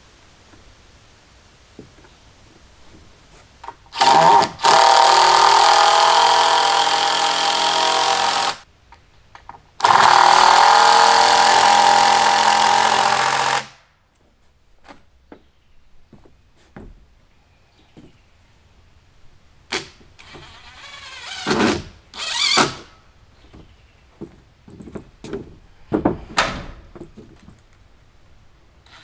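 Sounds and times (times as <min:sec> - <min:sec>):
power driver driving screws: 0:03.9 - 0:08.6, 0:09.8 - 0:13.7, 0:20.2 - 0:22.9.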